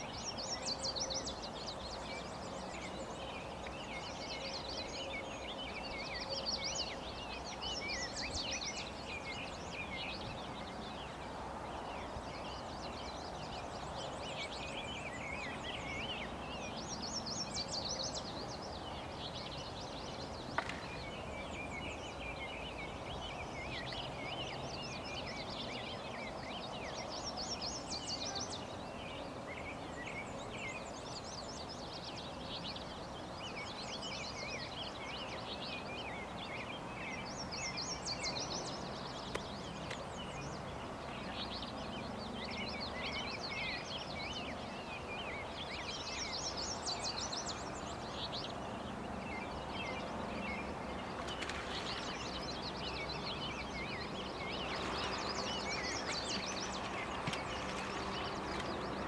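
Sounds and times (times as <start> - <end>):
songbirds chirping and trilling: 0.0 - 59.0.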